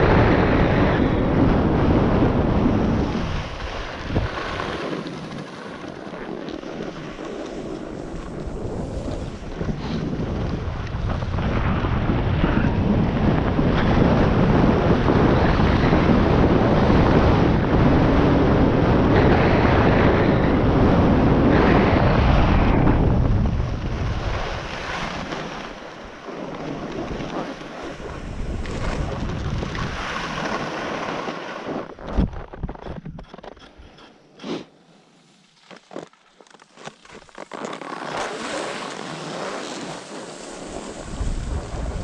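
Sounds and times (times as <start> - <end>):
wind buffeting microphone: 0.0 - 34.0, 40.5 - 42.0
snow hissing underfoot: 38.2 - 42.0.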